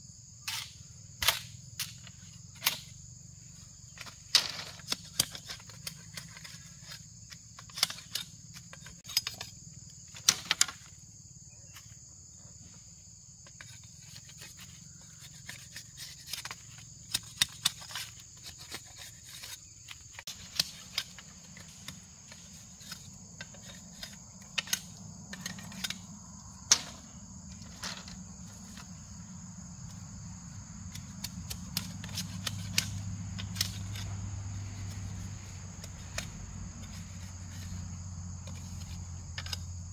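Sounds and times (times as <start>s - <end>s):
high buzz of insects: 0.0s - 39.9s
machete splitting bamboo: 0.4s - 3.0s, 3.9s - 10.9s, 13.6s - 26.1s, 30.9s - 39.7s.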